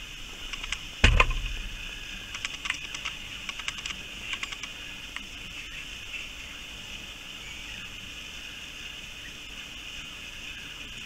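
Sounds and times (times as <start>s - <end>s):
animal feeding on gravel: 0.3s - 6.3s
thump: 1.0s - 1.7s.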